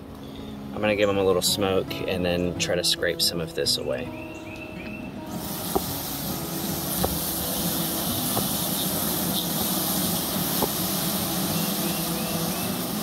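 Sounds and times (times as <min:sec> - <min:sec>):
bees humming: 0:04.2 - 0:13.0
bee smoker hissing: 0:05.2 - 0:13.0.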